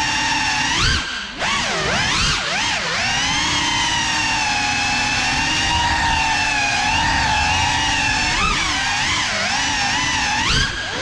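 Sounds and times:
drone propellers whining: 0.0 - 11.0.

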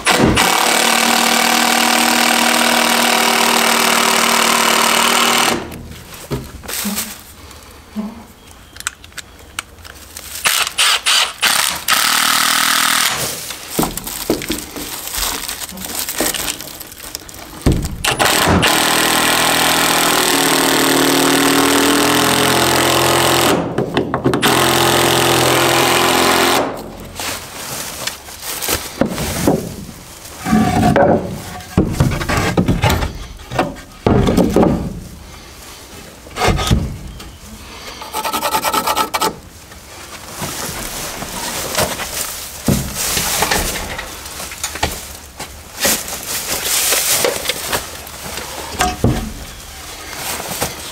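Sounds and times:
power saw cutting wood: 0.0 - 5.8, 10.4 - 13.4, 18.1 - 23.7, 24.4 - 27.0, 38.0 - 39.4.

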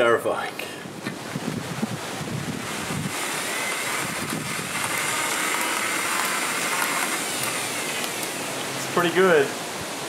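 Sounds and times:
faint motor whine: 0.6 - 10.0
small electric motor whirring: 2.3 - 9.0.

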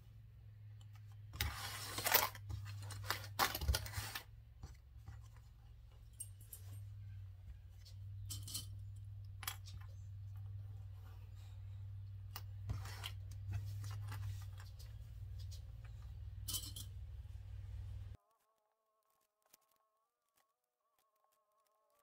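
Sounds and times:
steady low hum: 4.3 - 18.2.

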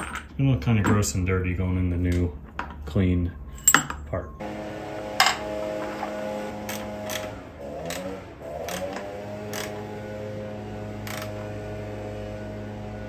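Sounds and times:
steady low hum: 3.3 - 13.0.

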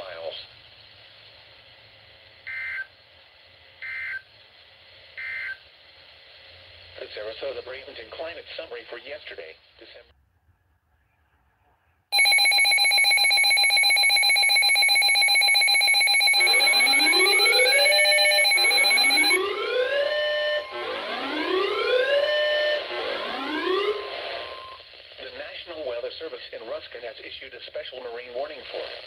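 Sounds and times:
pulsing electronic alarm tone: 12.2 - 24.8
whooping siren sweeps: 16.3 - 24.8.

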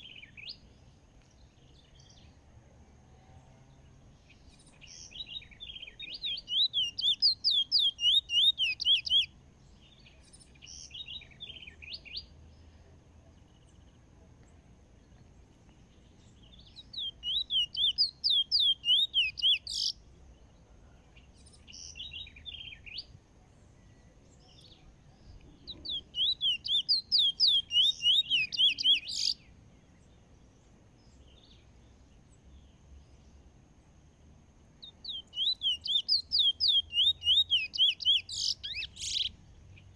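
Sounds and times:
bird singing trilled notes: 4.2 - 12.4, 15.9 - 20.0, 24.2 - 30.1, 34.8 - 39.9.

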